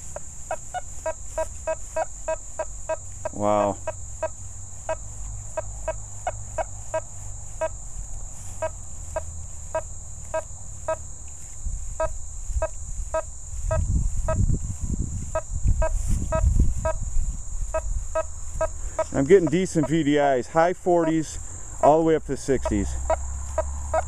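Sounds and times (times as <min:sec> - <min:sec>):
metal detector beeping: 0:00.0 - 0:05.0, 0:09.7 - 0:11.0, 0:12.0 - 0:14.4, 0:15.3 - 0:17.0, 0:17.7 - 0:20.1, 0:22.6 - 0:23.2.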